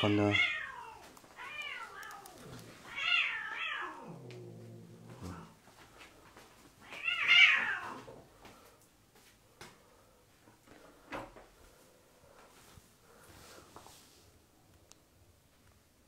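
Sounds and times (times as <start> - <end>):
cat meowing: 0.0 - 4.2, 6.8 - 8.1.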